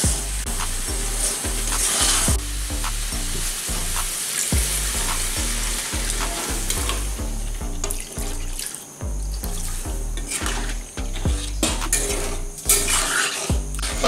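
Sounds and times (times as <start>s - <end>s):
food sizzling in pan: 0.0s - 7.1s, 11.8s - 13.5s
background music with beat: 0.0s - 14.0s
water pouring: 3.1s - 7.2s, 7.8s - 14.0s
metal spatula scraping pan: 10.2s - 14.0s.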